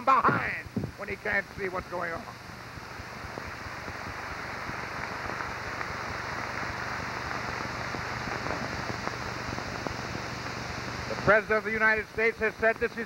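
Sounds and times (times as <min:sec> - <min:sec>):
audience applauding: 0:03.4 - 0:09.3.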